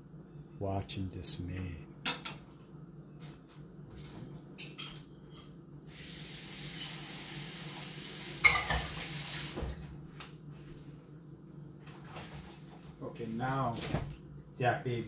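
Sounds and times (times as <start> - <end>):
steady hiss: 5.8 - 9.7.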